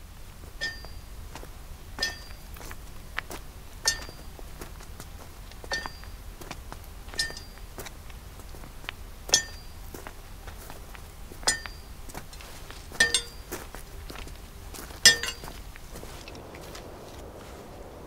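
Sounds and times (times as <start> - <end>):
stick clinking on steel rail: 0.6 - 1.0, 2.0 - 2.5, 3.9 - 4.3, 5.7 - 6.1, 7.2 - 7.6, 9.3 - 9.8, 11.4 - 12.4, 13.0 - 13.7, 15.0 - 15.6.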